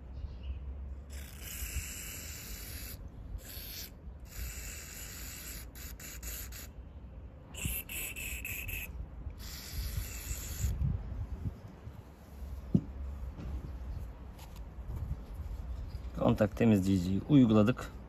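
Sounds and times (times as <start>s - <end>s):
aerosol spray hissing: 4.3s - 6.7s, 7.6s - 10.7s.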